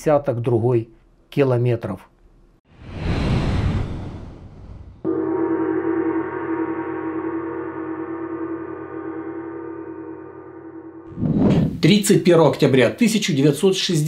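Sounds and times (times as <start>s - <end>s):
deep gong ringing: 5.1s - 11.1s.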